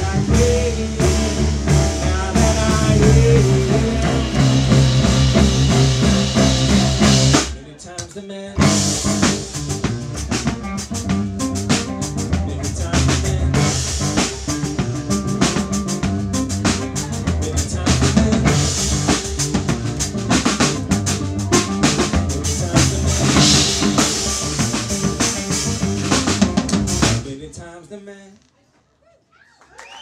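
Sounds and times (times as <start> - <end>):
drum kit with cymbals and snare: 0.0 - 7.8, 8.6 - 27.4
audience whooping and cheering: 29.1 - 30.0.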